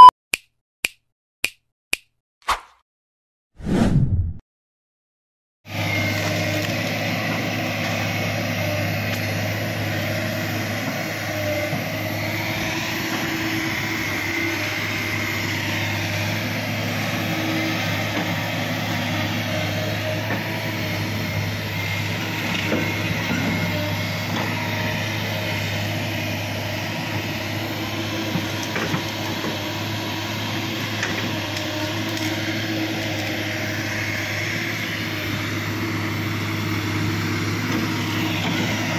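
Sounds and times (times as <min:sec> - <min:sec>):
diesel engine droning: 0:05.7 - 0:38.9.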